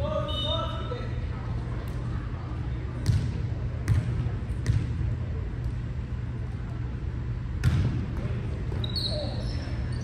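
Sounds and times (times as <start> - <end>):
volleyball thumping: 3.0 - 5.8, 7.5 - 8.8.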